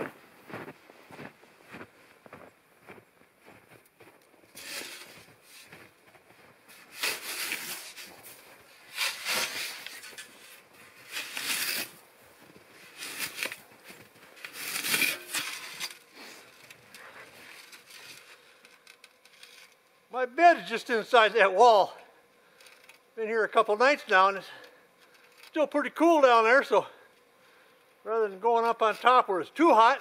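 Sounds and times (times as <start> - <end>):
faint footsteps in snow: 0.0 - 18.6
shovel scraping through snow: 4.6 - 5.7, 6.7 - 12.1, 12.8 - 18.4.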